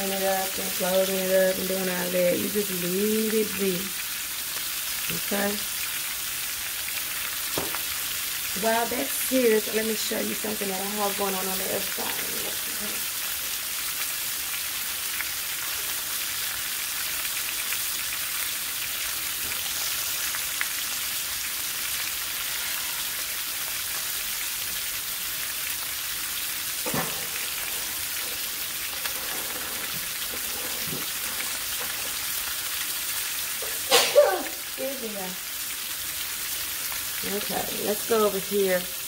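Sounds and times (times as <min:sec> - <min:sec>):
meat sizzling in grease: 0:00.0 - 0:39.0
grease pops and crackles: 0:07.5 - 0:08.0.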